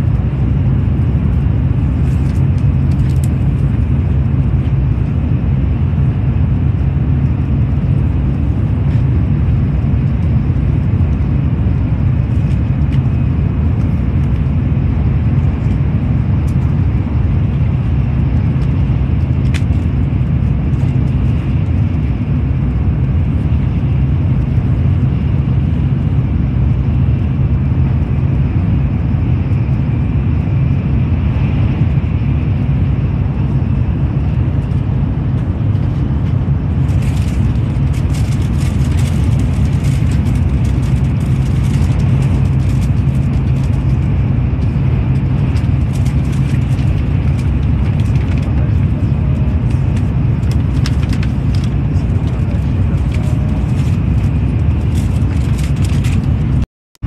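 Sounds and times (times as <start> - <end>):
train rumble inside cabin: 0.0 - 56.6.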